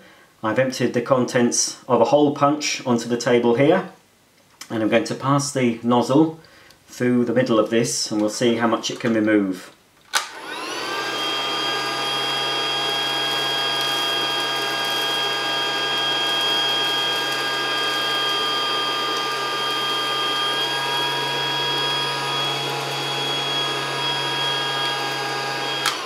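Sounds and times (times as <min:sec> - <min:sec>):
toy vacuum cleaner motor whining: 0:10.2 - 0:26.0.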